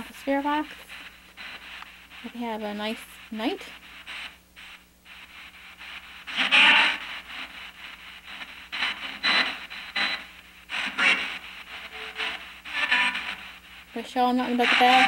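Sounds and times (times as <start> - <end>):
choppy bursts of radio static: 0.0 - 15.0.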